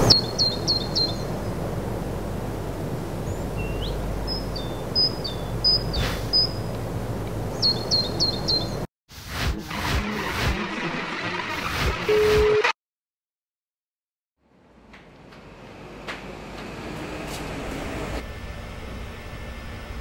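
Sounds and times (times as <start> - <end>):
small bird chirping: 0.0 - 1.3, 3.2 - 6.7, 7.5 - 8.8.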